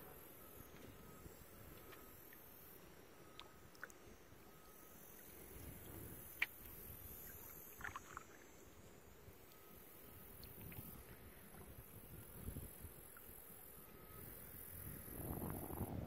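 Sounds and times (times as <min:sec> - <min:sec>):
low rumble of water: 0:00.0 - 0:16.0
small clicks and drips: 0:03.3 - 0:08.5, 0:09.4 - 0:12.4.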